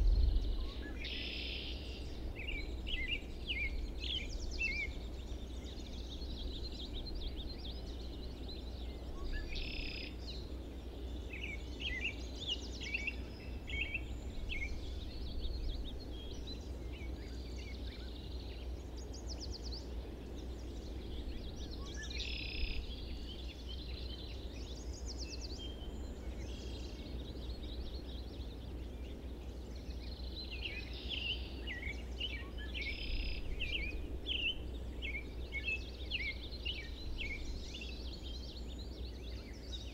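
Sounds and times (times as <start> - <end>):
low background rumble: 0.0 - 9.4
songbirds singing and chirping: 0.0 - 39.9.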